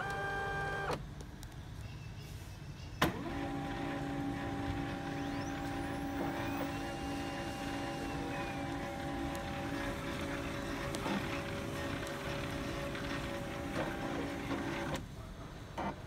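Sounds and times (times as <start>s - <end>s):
printer motor humming: 0.0s - 1.0s, 3.0s - 15.1s
printer click: 3.0s - 15.1s.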